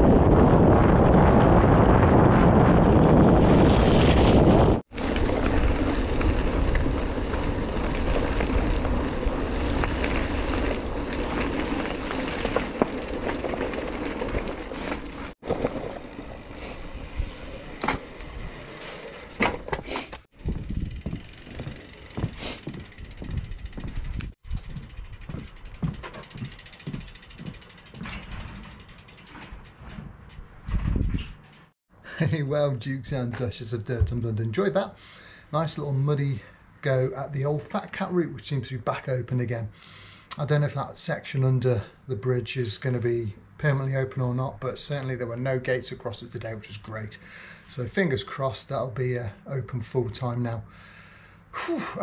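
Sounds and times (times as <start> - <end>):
wind buffeting microphone: 0.0 - 14.7, 20.3 - 25.5, 30.1 - 31.4
bicycle riding noise: 0.0 - 31.7
bike freehub ticking: 20.4 - 31.7
low knocks and thumps: 29.4 - 31.5.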